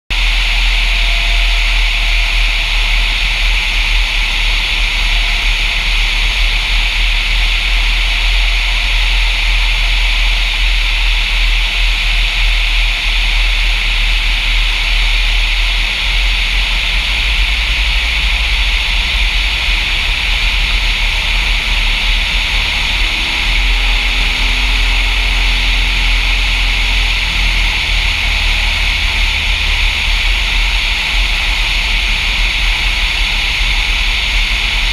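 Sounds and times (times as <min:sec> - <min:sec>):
aircraft engine and propeller droning: 0:00.1 - 0:34.9
airflow rushing: 0:16.6 - 0:34.9.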